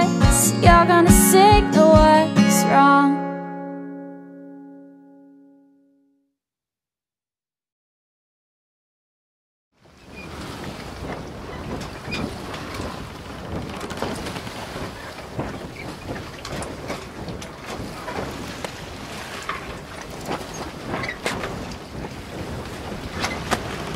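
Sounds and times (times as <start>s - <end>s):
rushing wind and water: 0.0s - 3.0s, 9.8s - 23.9s.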